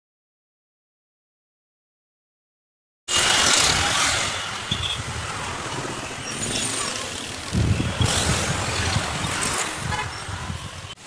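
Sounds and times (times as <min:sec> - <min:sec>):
car engines running: 0:03.1 - 0:10.7
bus passing: 0:03.1 - 0:11.0.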